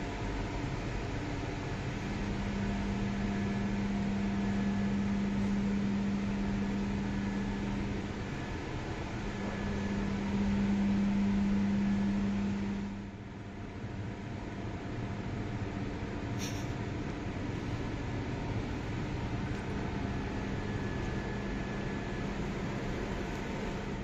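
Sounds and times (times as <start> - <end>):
low hum: 0.0 - 13.9.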